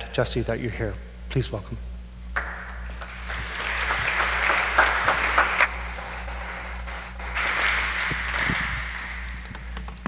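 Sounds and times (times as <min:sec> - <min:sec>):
crowd clapping: 0:02.4 - 0:09.6.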